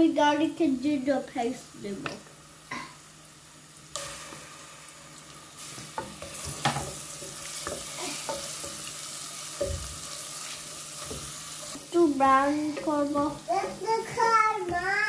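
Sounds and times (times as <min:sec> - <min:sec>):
onions sizzling in oil: 0:00.0 - 0:15.0
wooden spoon knocking pan: 0:05.9 - 0:08.8, 0:09.5 - 0:10.1.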